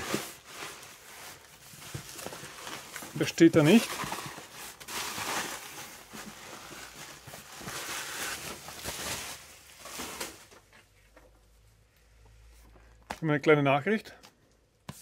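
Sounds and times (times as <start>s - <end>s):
cardboard and plastic rustling: 0.0s - 11.4s.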